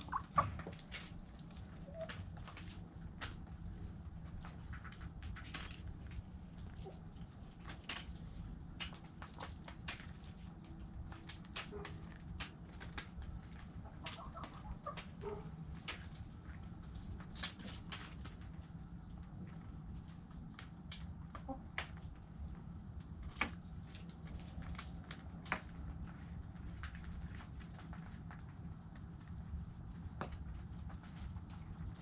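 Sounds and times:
hens clucking: 0.0s - 2.7s, 13.7s - 15.5s, 21.4s - 21.8s.

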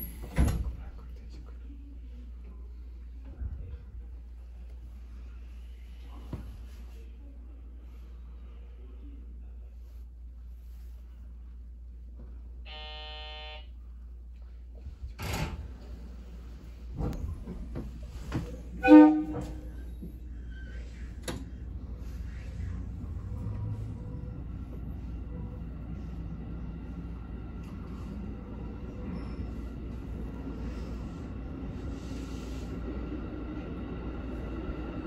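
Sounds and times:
train low hum: 0.0s - 35.0s
loud short tone: 12.7s - 13.7s
low rumble: 19.8s - 35.0s.

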